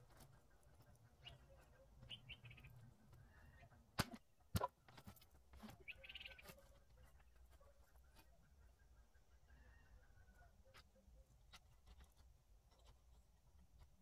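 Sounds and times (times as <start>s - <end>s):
faint bird chirps: 0.0s - 3.9s, 5.5s - 11.6s.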